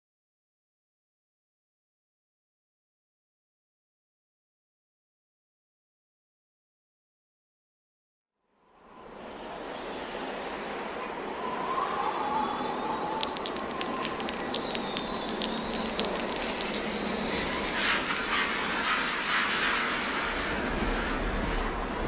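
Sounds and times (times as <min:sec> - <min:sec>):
ambient electronic soundscape: 0:08.8 - 0:22.0
hissing texture: 0:13.0 - 0:21.5
sharp clicks: 0:13.2 - 0:18.1.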